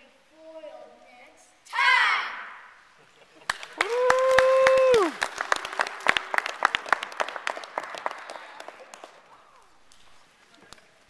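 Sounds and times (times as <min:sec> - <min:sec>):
high cheering voice: 0:01.7 - 0:02.8, 0:03.8 - 0:05.3
audience applause: 0:03.4 - 0:09.8.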